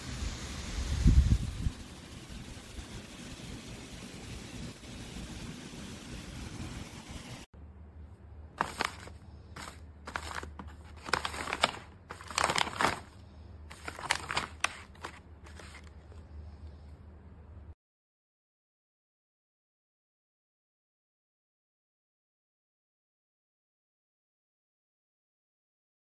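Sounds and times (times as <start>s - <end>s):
plastic pouches crinkling: 8.6s - 16.2s.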